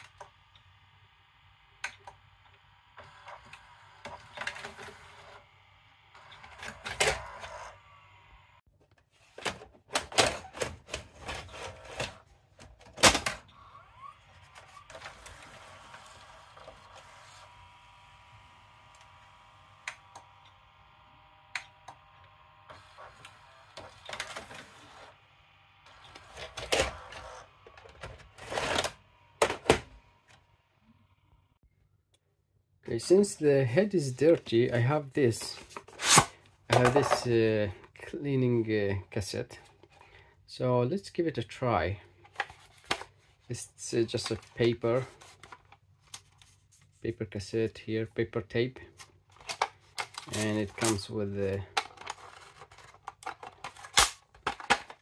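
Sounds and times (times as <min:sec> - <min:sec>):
tape mechanism clicks and clatter: 0:49.3 - 0:55.0.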